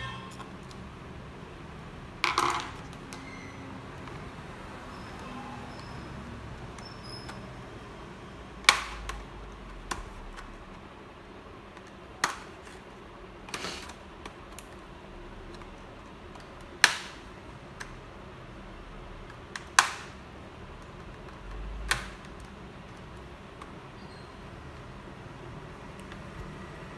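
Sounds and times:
plastic clips snapping: 8.6 - 10.5, 16.3 - 17.2, 19.2 - 20.2, 20.8 - 23.8.

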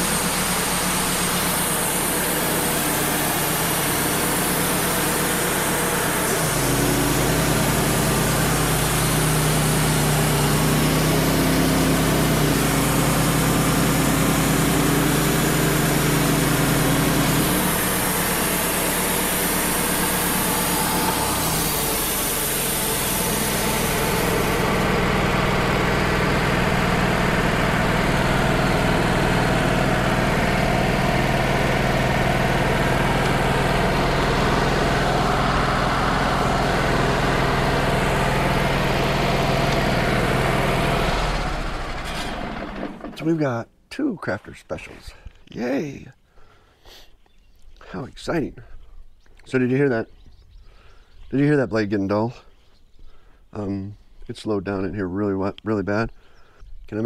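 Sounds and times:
band blade hissing in wood: 0.0 - 25.3
sawmill engine under load: 0.0 - 43.6.

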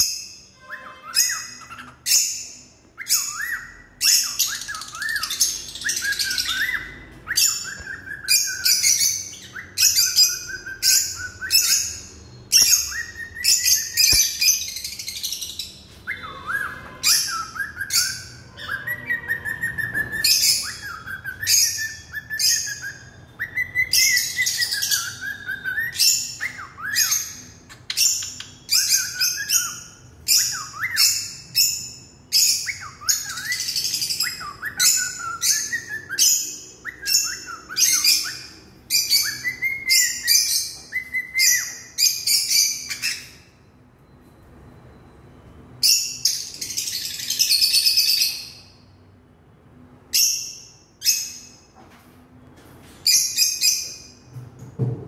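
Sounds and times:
parrots chirping shrilly: 0.0 - 43.6.

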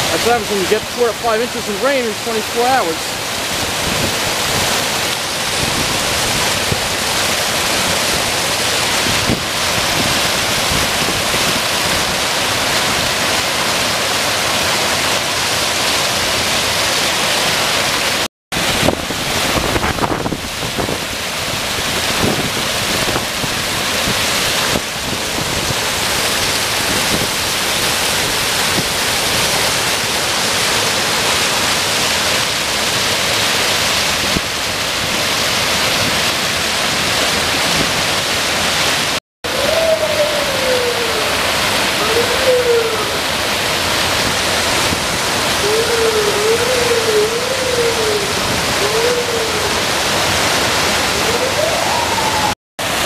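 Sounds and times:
water rushing over spillway: 0.0 - 53.0.

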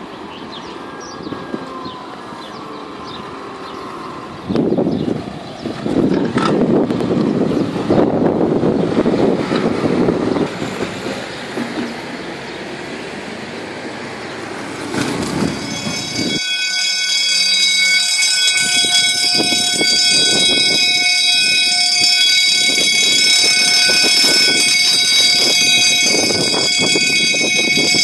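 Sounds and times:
wind-like noise: 0.0 - 16.4, 18.5 - 28.0
train rattling and rumbling: 0.0 - 28.0
level crossing bell ringing: 15.5 - 28.0.

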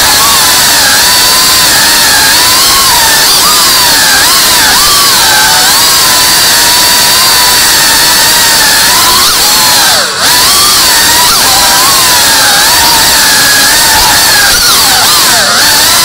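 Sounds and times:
drone motors whining: 0.0 - 16.0.

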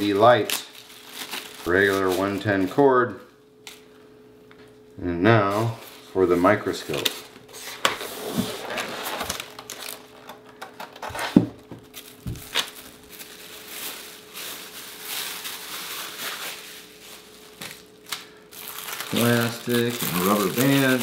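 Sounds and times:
plastic bag crinkling: 0.0 - 2.8, 8.6 - 21.0.

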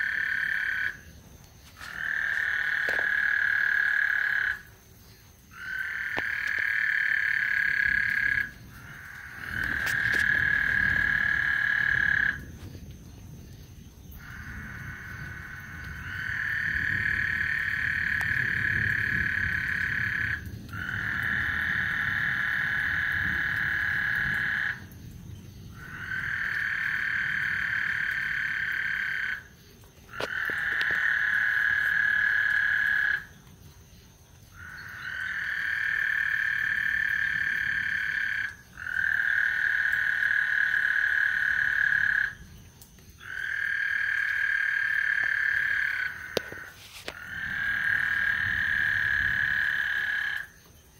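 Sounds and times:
frogs calling: 0.0 - 50.9.

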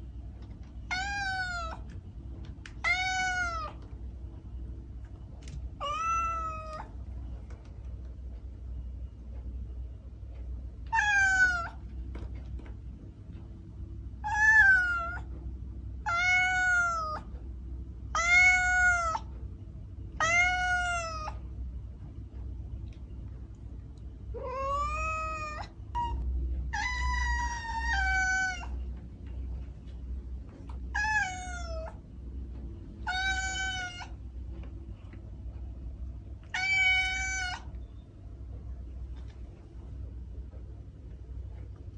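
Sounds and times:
kitten meowing: 0.9 - 1.8, 2.8 - 3.8, 5.8 - 6.9, 24.4 - 28.8, 33.0 - 34.2, 36.5 - 37.7.

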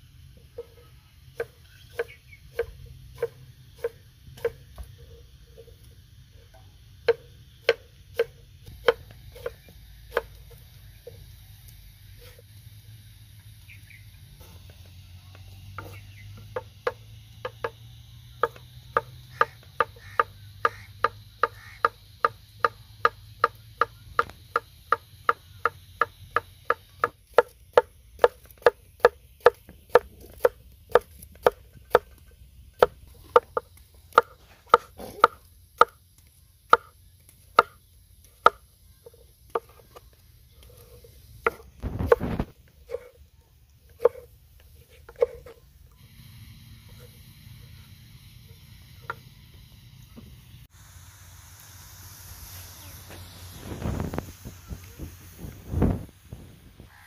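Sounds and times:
knife chopping on wooden board: 43.9 - 45.5.

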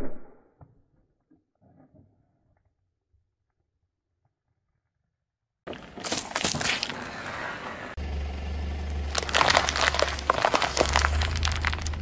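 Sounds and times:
tyre crushing snacks crackling: 5.7 - 7.4, 9.1 - 12.0
plastic tray cracking and crunching: 9.1 - 12.0.

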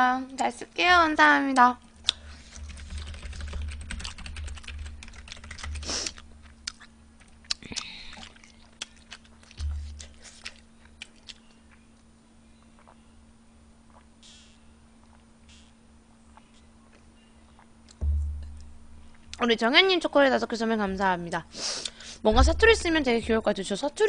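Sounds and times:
computer keyboard typing: 2.5 - 5.9
soft low thump: 9.6 - 10.0, 18.0 - 19.4, 22.3 - 23.8.

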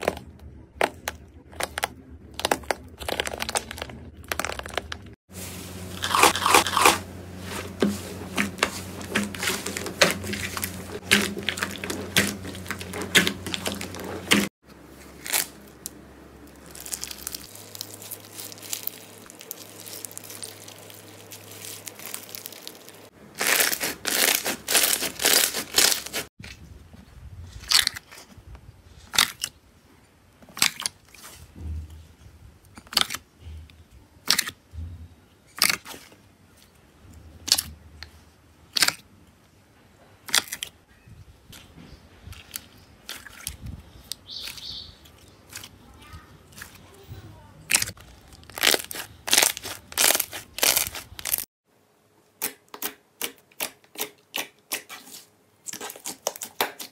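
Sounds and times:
slime squishing with crackles: 0.0 - 5.2, 5.8 - 34.8, 35.4 - 39.6, 41.5 - 51.5, 52.4 - 56.9
slime crust cracking and crunching: 0.8 - 5.1, 6.0 - 7.0, 15.1 - 26.3, 27.6 - 28.3, 29.0 - 29.5, 38.7 - 39.0, 47.6 - 51.5.

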